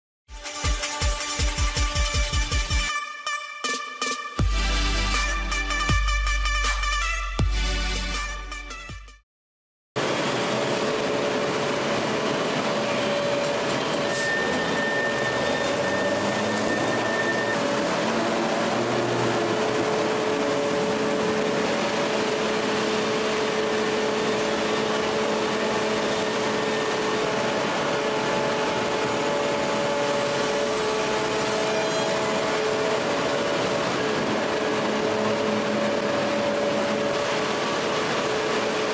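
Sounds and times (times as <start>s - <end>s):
forging machinery drone: 10.0s - 38.9s
thin high tone: 12.8s - 17.9s.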